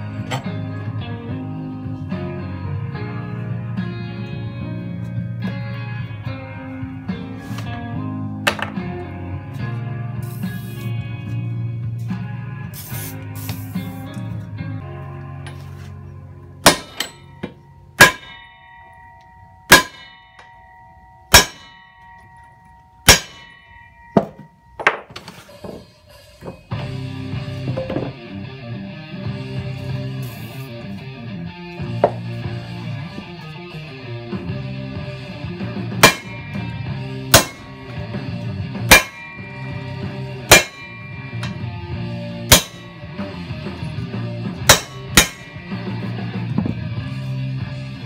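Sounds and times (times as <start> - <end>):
low bass line: 0.0 - 19.6, 26.7 - 48.0
guitar music: 0.0 - 24.8, 25.8 - 48.0
hammer striking metal: 16.6 - 26.8, 35.9 - 43.5, 44.5 - 46.1
plucked guitar notes: 26.7 - 48.0.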